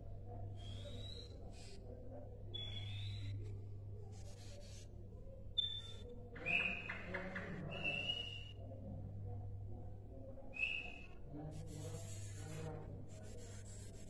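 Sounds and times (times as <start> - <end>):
bird whistling thin notes: 10.6 - 11.0.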